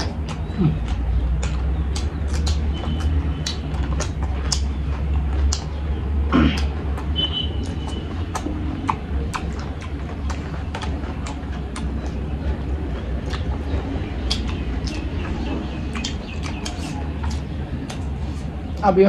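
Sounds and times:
wet chewing and lip smacks: 0.0s - 18.8s.

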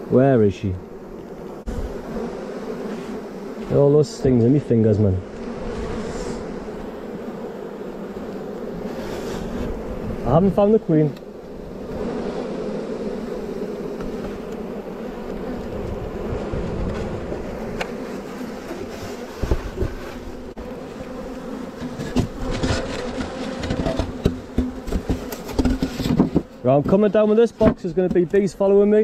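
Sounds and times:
bees buzzing: 0.0s - 29.0s
thumps and knocks: 18.7s - 20.2s, 21.8s - 27.0s, 27.6s - 28.5s.

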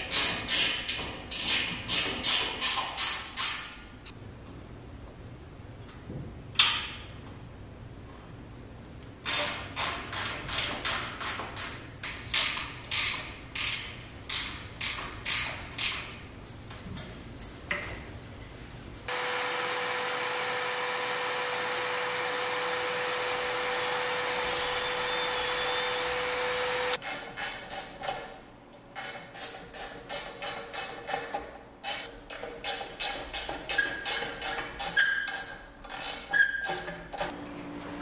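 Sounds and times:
cordless drill boring into wood: 19.1s - 27.0s.

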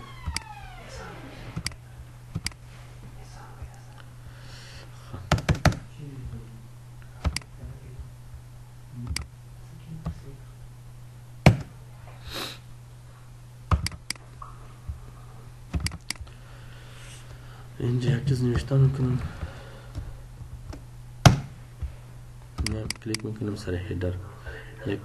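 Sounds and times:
steady low hum: 0.0s - 25.0s
computer mouse clicks: 1.6s - 2.6s, 7.2s - 7.5s, 9.1s - 9.3s, 13.7s - 14.2s, 15.8s - 16.3s, 22.6s - 23.3s
keyboard keystrokes: 7.2s - 7.5s, 13.7s - 14.2s, 15.7s - 16.3s, 22.6s - 23.3s.

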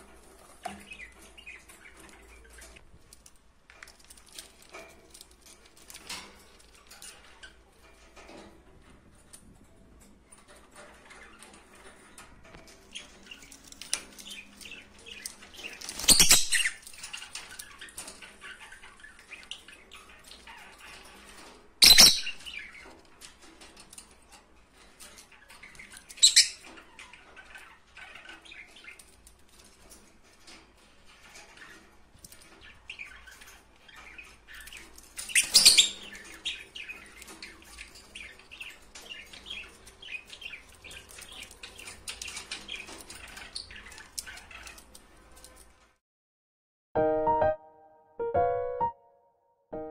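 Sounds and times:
lovebirds chirping and chattering: 0.0s - 45.8s
wing-flapping or shrill bird calls: 15.6s - 18.1s, 21.8s - 22.5s, 35.3s - 36.7s.

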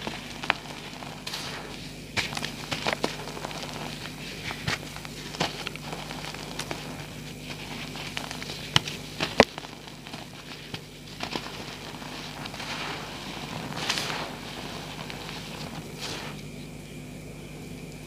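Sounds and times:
chalk powder rustling: 0.0s - 16.5s
sharp chalk cracks: 0.0s - 16.5s
chalk crunching by hand: 0.0s - 16.6s
faint steady hum: 0.0s - 18.0s.

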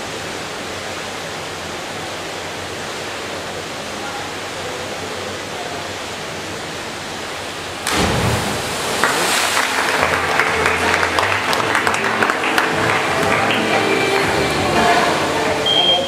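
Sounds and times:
indoor pool hall hiss: 0.0s - 16.0s
divers entering water: 7.7s - 16.0s
spectators clapping and cheering: 8.7s - 16.0s.

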